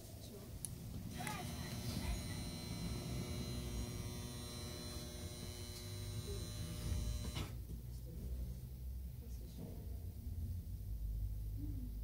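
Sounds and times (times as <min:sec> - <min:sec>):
low rumble inside elevator: 0:00.8 - 0:07.4
elevator electric hum and buzz: 0:00.8 - 0:07.6.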